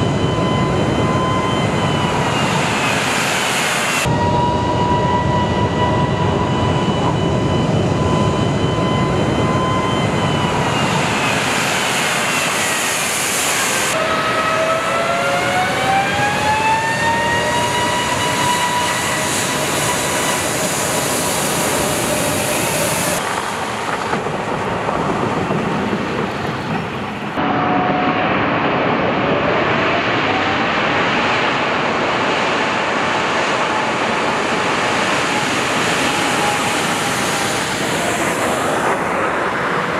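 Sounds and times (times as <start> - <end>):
faint engine whine: 0.0 - 25.0
jet engines at high power: 0.0 - 39.9.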